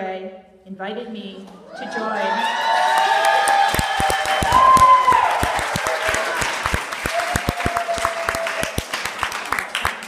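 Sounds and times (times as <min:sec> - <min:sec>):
person shouting or cheering: 0:01.7 - 0:06.4
audience clapping: 0:02.5 - 0:10.0.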